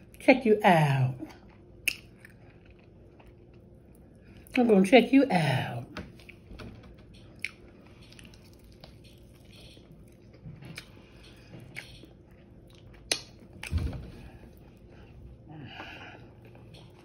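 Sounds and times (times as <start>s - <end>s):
chewing crispy food: 1.3s - 4.7s, 7.1s - 13.7s.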